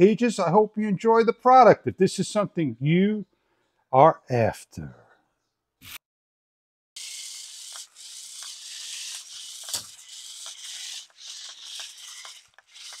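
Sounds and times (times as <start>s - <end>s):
toy car electric motors whirring: 7.0s - 13.0s.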